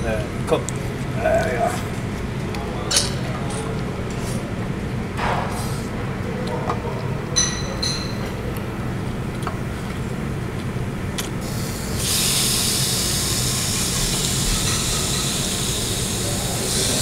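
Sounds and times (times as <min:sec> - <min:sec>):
food sizzling on a grill: 0:12.0 - 0:17.0.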